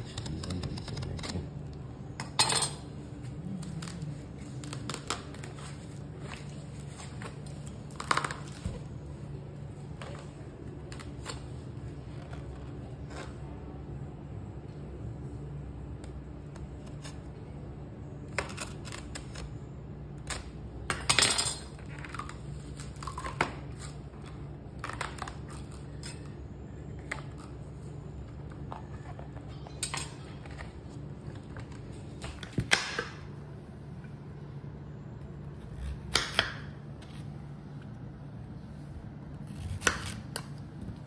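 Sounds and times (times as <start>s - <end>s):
steady low hum: 0.0s - 41.0s
knife cutting palm heart: 39.4s - 40.5s.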